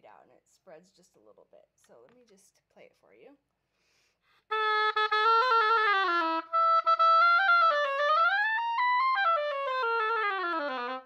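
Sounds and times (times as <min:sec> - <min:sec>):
player breathing: 0:03.7 - 0:04.5
oboe playing: 0:04.5 - 0:11.0.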